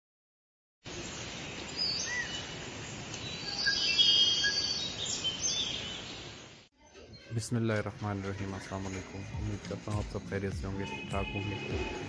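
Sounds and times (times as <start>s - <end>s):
background hiss: 0.9s - 6.7s
birds chirping and whistling: 1.8s - 2.5s, 3.2s - 6.3s.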